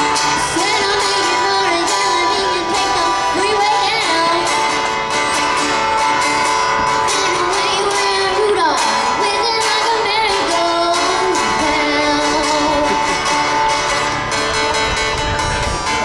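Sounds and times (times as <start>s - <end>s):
girl singing: 0.0s - 4.9s, 7.1s - 13.8s
acoustic guitar strumming: 0.0s - 16.0s.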